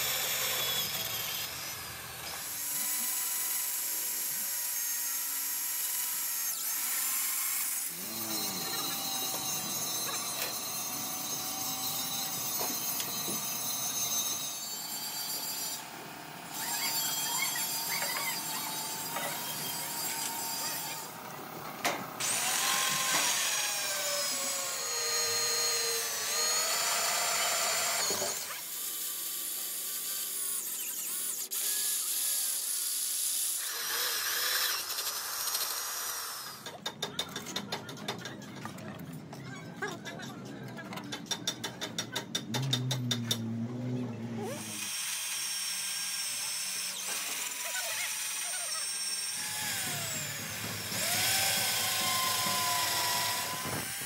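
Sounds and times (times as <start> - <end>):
power tool motor whine: 0.0 - 21.3, 22.2 - 28.8, 43.8 - 54.0.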